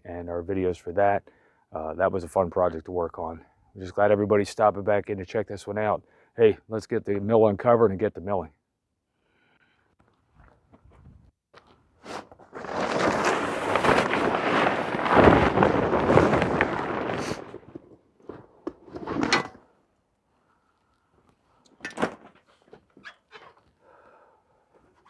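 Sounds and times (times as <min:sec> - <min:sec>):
plastic tarp rustling: 0:12.0 - 0:19.3.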